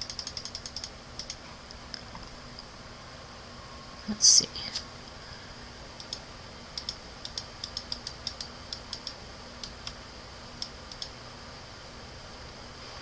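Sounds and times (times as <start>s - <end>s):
computer mouse clicks: 0.0s - 2.0s, 6.0s - 6.2s, 6.8s - 10.0s, 10.6s - 11.1s
faint high whine: 0.0s - 13.0s.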